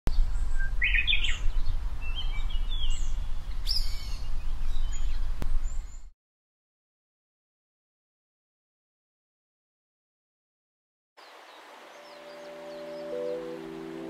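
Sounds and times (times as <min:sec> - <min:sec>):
birds chirping and whistling: 0:00.1 - 0:06.1, 0:11.5 - 0:14.0.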